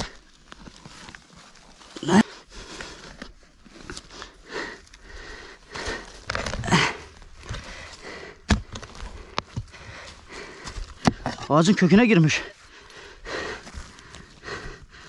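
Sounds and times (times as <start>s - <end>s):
shovel scraping earth: 5.7s - 12.0s.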